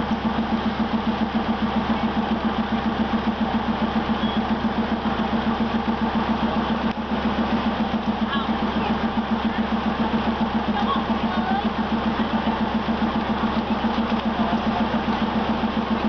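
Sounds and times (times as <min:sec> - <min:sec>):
diesel train engine idling: 0:00.0 - 0:16.0.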